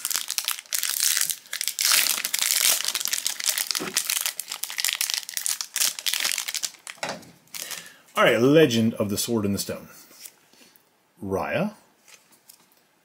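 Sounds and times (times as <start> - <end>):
foil wrapper crinkling and tearing: 0.0 - 7.9.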